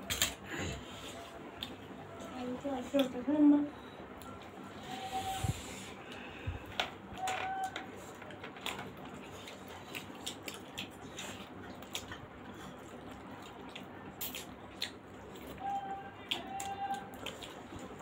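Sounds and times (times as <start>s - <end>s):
clicks and squishes of soft food: 0.0s - 3.2s, 6.0s - 18.0s
people chewing food: 0.0s - 18.0s.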